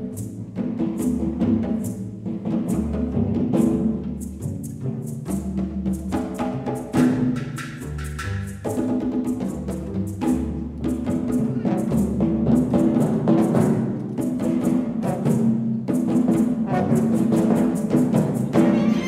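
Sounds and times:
orchestra playing calypso: 0.0s - 19.0s
sharp percussion strikes: 11.0s - 19.0s.

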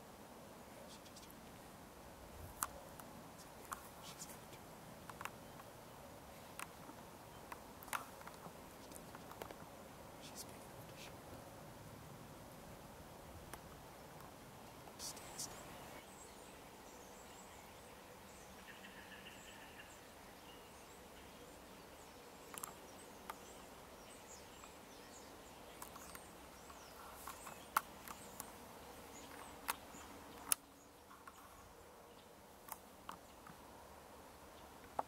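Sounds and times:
faint steady hiss: 0.0s - 35.0s
small sharp clicks and taps: 5.0s - 5.7s, 6.5s - 9.6s, 22.5s - 23.4s, 25.8s - 28.5s
faint high bird chirps: 15.0s - 32.4s.

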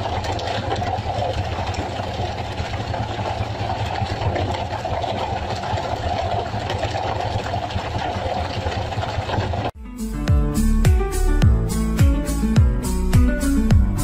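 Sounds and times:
boat engine running: 0.0s - 9.8s.

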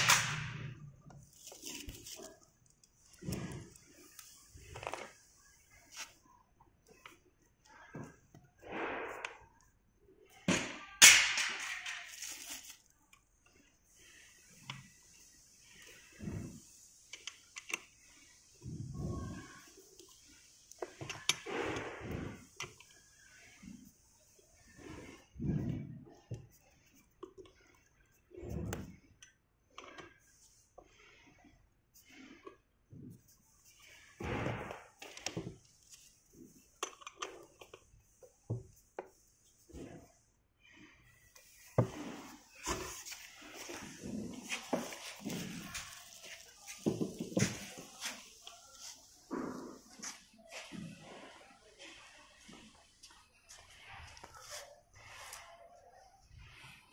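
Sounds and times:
plastic wrapping film rustling: 11.6s - 13.0s.

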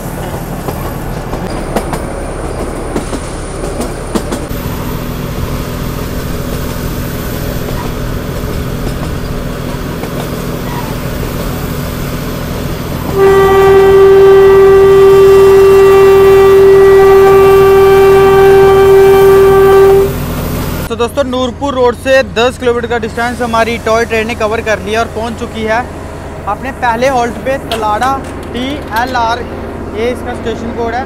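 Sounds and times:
train running: 0.0s - 31.0s
locomotive horn: 13.0s - 20.3s
wheels clicking over rail joints: 27.3s - 29.4s.

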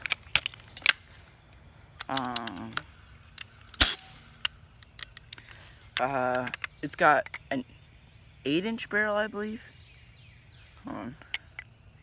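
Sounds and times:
air pistol clicks and knocks: 1.9s - 7.5s.

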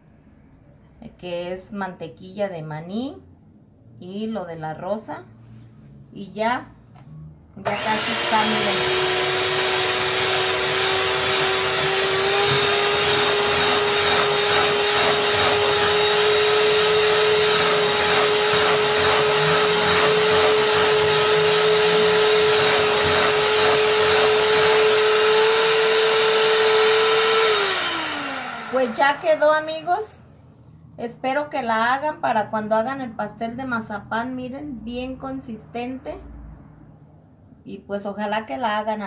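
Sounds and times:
electric hand mixer whining: 7.6s - 30.1s.

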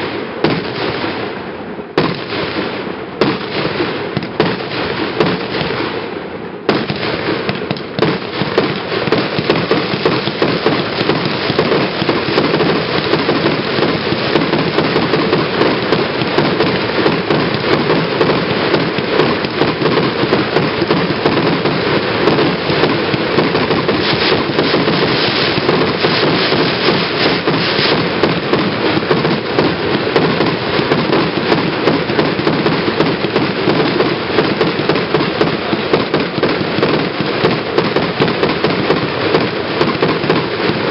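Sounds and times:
fireworks launching and bursting: 0.0s - 40.9s.

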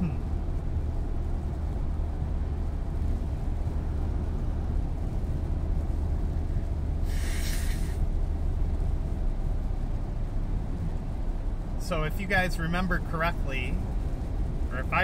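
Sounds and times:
road rumble with tyre hiss: 0.0s - 15.0s
brief higher hiss: 7.0s - 8.0s.

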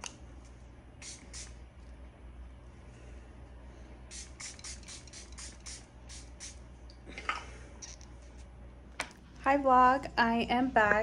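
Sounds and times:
spray bottle hissing puffs: 1.0s - 1.6s, 4.1s - 6.6s.

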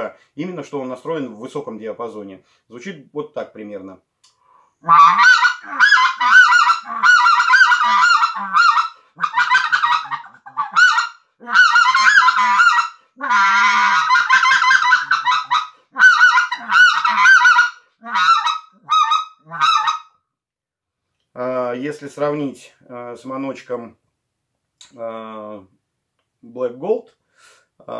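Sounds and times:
goose call honks: 4.8s - 20.1s.

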